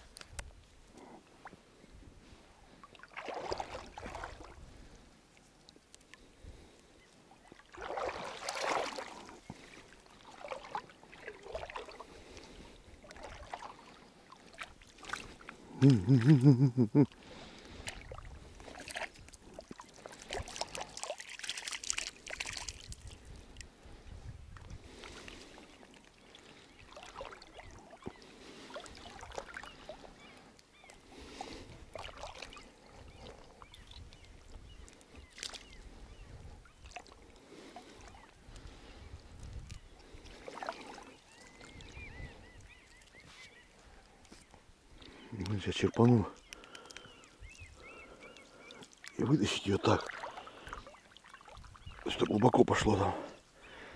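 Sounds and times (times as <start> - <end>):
water splashing and dripping: 2.8 - 4.6, 7.5 - 16.6, 17.3 - 23.7, 24.6 - 30.1, 31.9 - 35.7, 36.8 - 38.6, 39.4 - 42.0, 47.8 - 52.8.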